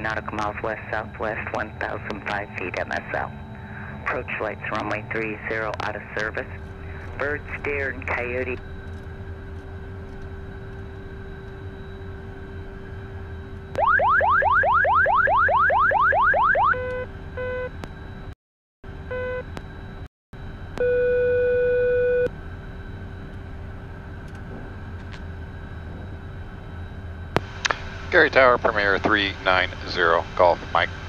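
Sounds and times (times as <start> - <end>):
warning horn steady tone: 9.8 - 17.8
short beeps: 20.8 - 22.3.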